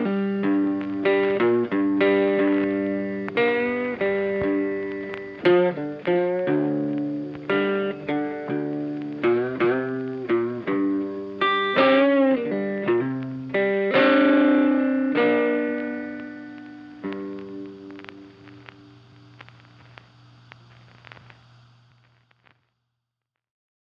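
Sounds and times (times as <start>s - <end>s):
plucked guitar melody: 0.0s - 18.8s.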